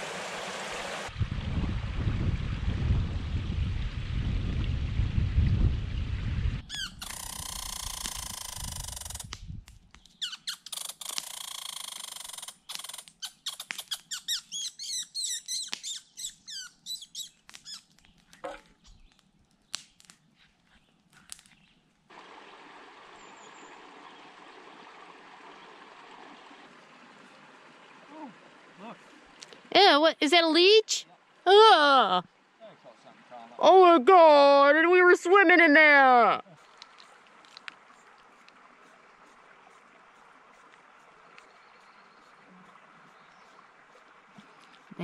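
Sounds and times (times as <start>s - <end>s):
high chirps and squeaky calls: 6.7s - 9.3s, 10.0s - 19.2s.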